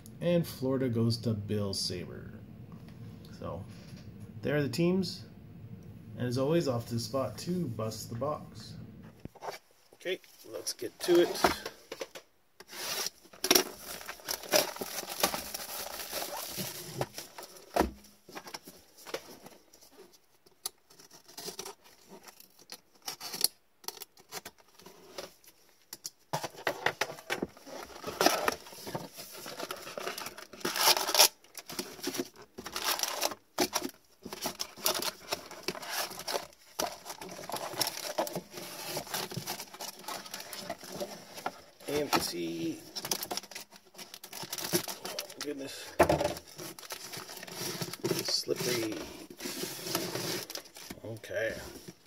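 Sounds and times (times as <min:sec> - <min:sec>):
gloved hands scraping cardboard box: 0:12.6 - 0:17.7, 0:46.5 - 0:52.0
plastic shrink-wrap tearing: 0:12.8 - 0:17.5, 0:29.6 - 0:41.0, 0:41.9 - 0:45.7, 0:46.4 - 0:50.9.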